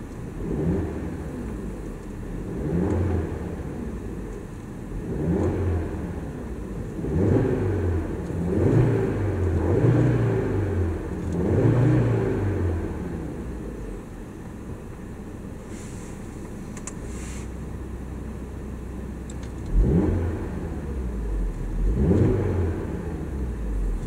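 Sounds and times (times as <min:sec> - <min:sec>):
car engine revving: 0:00.0 - 0:14.1, 0:19.4 - 0:24.0.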